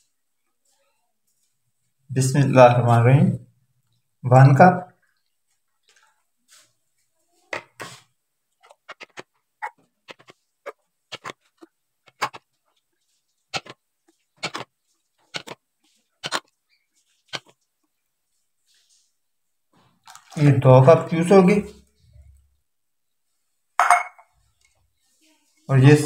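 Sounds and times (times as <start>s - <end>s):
juice pouring: 19.9s - 21.1s
cups clinking against bowls: 23.8s - 24.4s.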